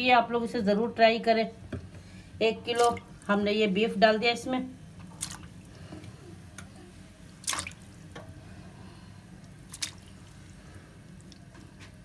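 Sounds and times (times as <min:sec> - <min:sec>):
steady low hum: 0:00.0 - 0:12.0
meat splashing into water: 0:02.7 - 0:03.2, 0:05.0 - 0:06.2, 0:07.4 - 0:08.1, 0:09.4 - 0:11.5.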